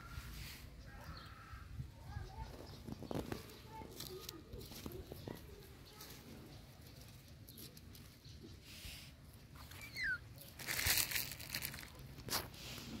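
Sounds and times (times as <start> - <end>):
dry leaves crackling underfoot: 2.5 - 8.2, 9.6 - 13.0.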